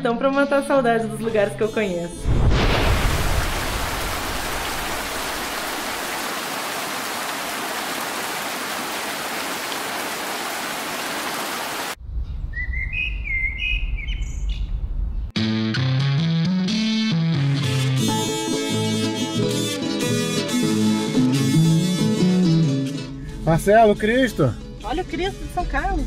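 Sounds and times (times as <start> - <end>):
music: 0.0 - 2.3, 15.4 - 26.0
low rumble: 2.2 - 5.1
heavy rain falling: 2.4 - 12.0
bird chirps: 12.2 - 14.8.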